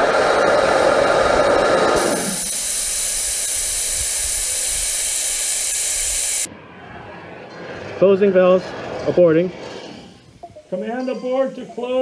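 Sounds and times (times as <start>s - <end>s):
high hiss of gas: 0.0s - 6.5s.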